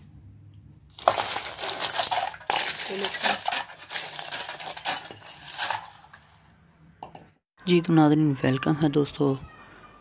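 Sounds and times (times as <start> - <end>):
ice cubes clattering into pot: 0.9 - 6.3.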